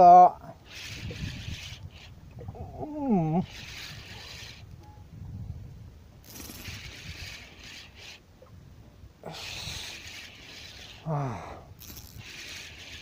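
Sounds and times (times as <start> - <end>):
hands and gear rubbing and scraping: 6.2 - 8.2, 11.8 - 13.0
person grunting: 11.1 - 11.6.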